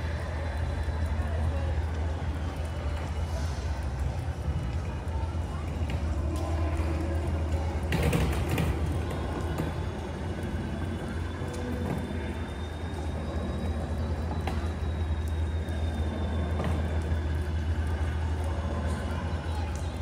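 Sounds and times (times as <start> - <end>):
rain hissing: 0.0 - 7.9, 8.7 - 20.0
drips and taps: 0.0 - 20.0.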